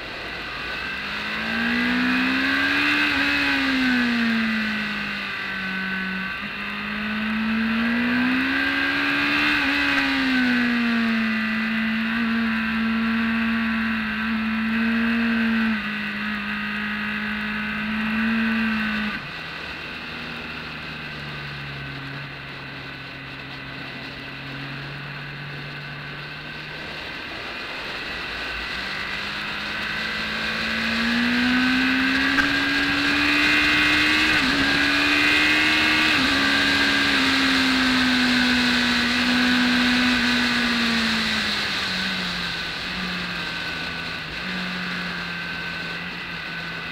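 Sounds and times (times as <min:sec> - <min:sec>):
motorcycle engine: 0:00.0 - 0:46.9.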